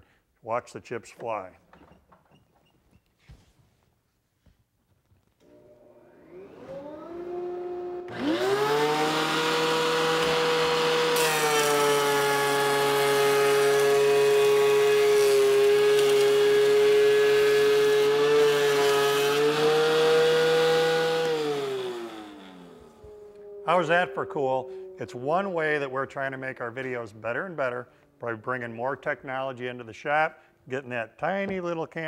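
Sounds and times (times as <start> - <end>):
thickness planer running: 5.4 - 25.5
wood being planed: 6.2 - 22.8.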